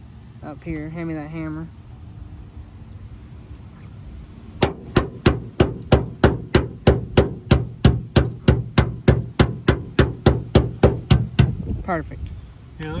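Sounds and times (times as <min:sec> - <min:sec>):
hammer on sheet metal: 0:04.6 - 0:11.6.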